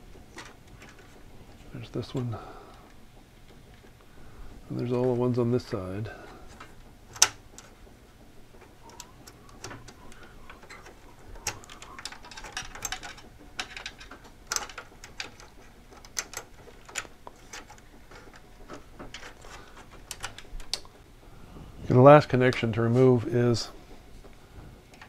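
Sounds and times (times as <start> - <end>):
wire connectors clicking: 6.5 - 7.8, 8.5 - 21.0.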